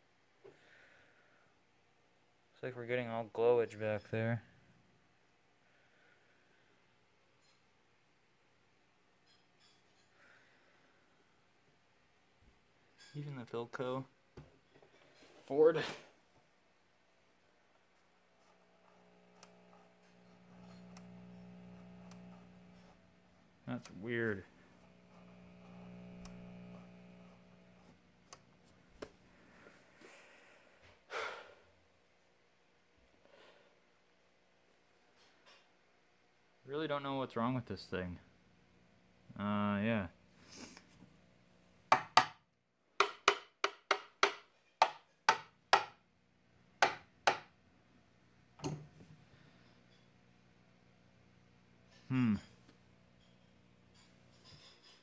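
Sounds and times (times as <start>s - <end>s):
low hum: 18.4s - 28.6s
tool tapping on cabinet: 41.9s - 42.4s, 43.0s - 46.0s, 46.8s - 47.5s
person sighing: 52.0s - 52.6s.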